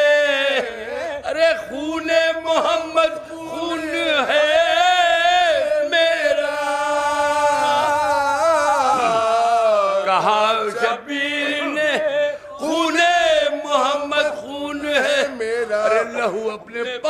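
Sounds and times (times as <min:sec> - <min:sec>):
men chanting an elegy: 0:00.0 - 0:17.0.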